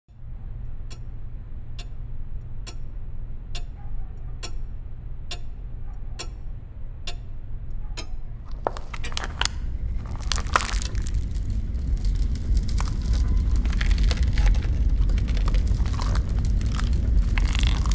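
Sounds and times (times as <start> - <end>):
low steady hum: 0.1 - 17.9
clock ticking: 0.8 - 8.3
glass crackling: 8.5 - 17.9.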